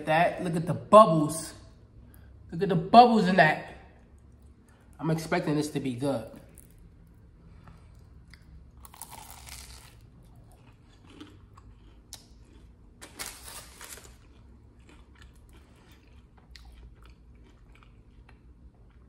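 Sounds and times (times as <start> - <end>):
pastry crust crunching: 6.3 - 19.0.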